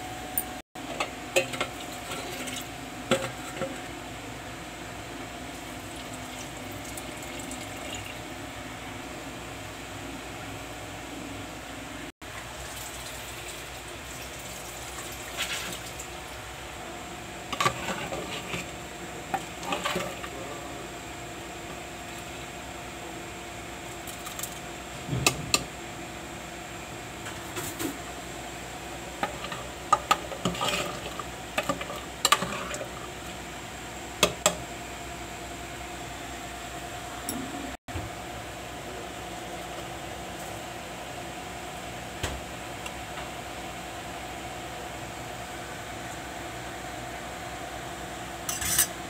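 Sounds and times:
steady background hum: 0:00.0 - 0:49.0
metal spoon scraping cooking pot: 0:17.5 - 0:18.7, 0:19.3 - 0:20.4, 0:29.2 - 0:32.8, 0:48.5 - 0:49.0.

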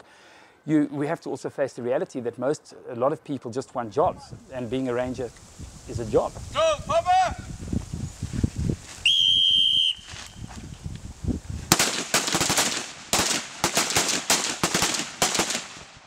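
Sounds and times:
whistle blast: 0:09.0 - 0:10.4
volley of rifle shots: 0:11.7 - 0:16.0.

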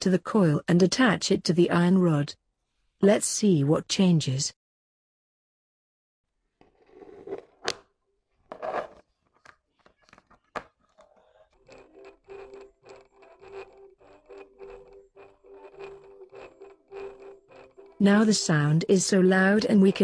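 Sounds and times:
magnet scraping: 0:08.5 - 0:20.0.

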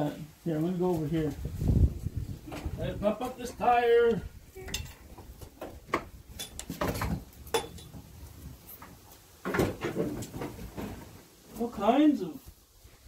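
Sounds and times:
clinks and knocks of items handled: 0:04.7 - 0:11.2.

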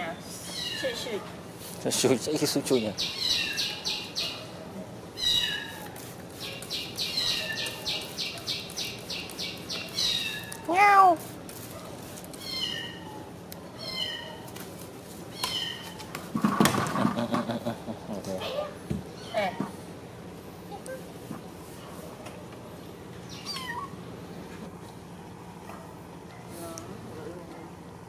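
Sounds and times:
high chirps and trills: 0:05.2 - 0:11.2.

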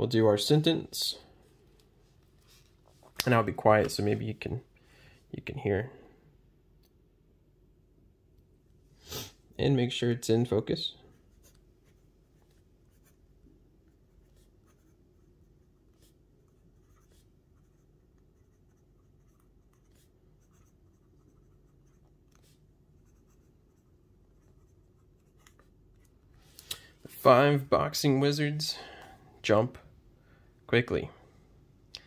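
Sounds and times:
fountain pen scratching on paper: 0:14.2 - 0:25.7.

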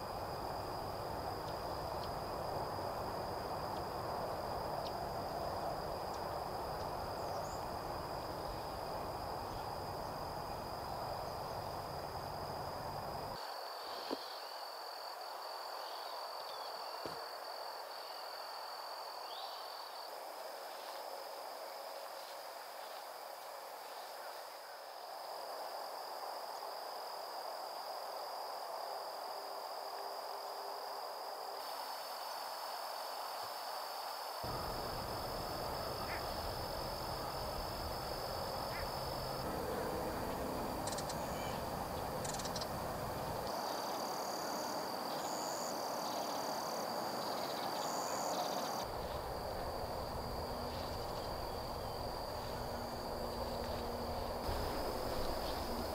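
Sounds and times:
insects droning: 0:00.0 - 0:55.9
outdoor hiss: 0:00.0 - 0:55.9.

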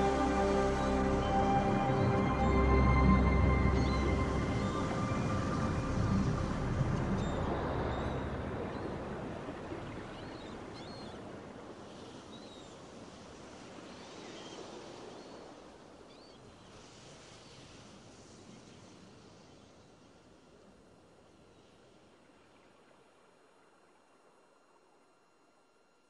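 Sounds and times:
steady noise wash: 0:00.0 - 0:10.8.

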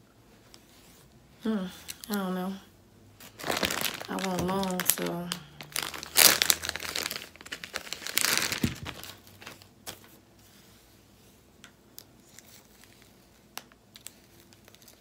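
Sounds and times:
plastic packaging rustling: 0:03.2 - 0:10.2, 0:12.0 - 0:15.0.

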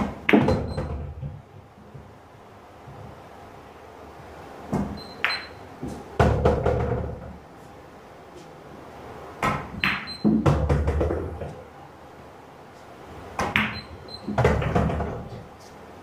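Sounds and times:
balls rolling and knocking on table: 0:00.0 - 0:02.2, 0:04.7 - 0:07.4, 0:09.4 - 0:11.7, 0:13.3 - 0:15.5
pool balls clicking together: 0:04.7 - 0:05.6, 0:09.4 - 0:11.5.

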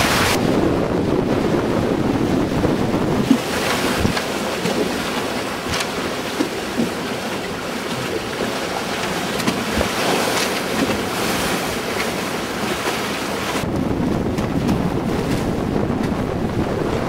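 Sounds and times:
wind buffeting the microphone: 0:00.0 - 0:07.0, 0:13.5 - 0:17.0
water rushing along boat hulls: 0:00.0 - 0:17.0.

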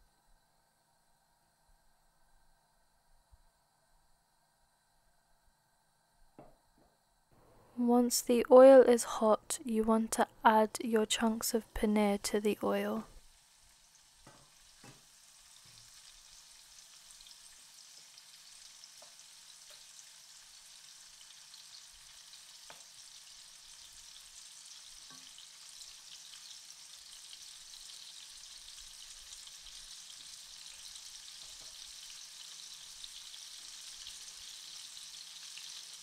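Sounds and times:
cubes sizzling in hot oil: 0:10.2 - 0:36.0.

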